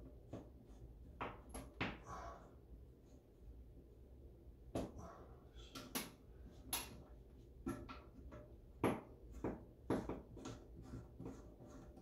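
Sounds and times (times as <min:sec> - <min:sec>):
plastic fittings clicking and knocking: 0:05.7 - 0:12.0.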